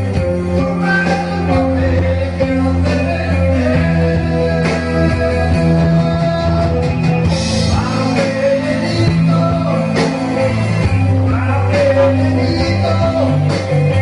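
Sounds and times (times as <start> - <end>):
band playing live: 0.0 - 14.0
man singing: 0.0 - 14.0.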